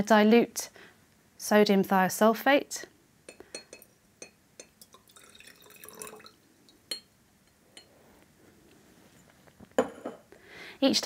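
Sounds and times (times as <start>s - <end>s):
light glass taps: 3.3s - 4.9s, 6.9s - 7.9s
liquid pouring into glass flask: 4.6s - 7.0s.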